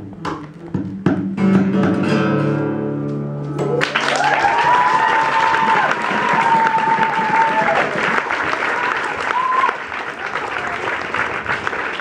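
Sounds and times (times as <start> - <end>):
acoustic guitar strumming: 0.0 - 3.8
applause: 3.8 - 12.0.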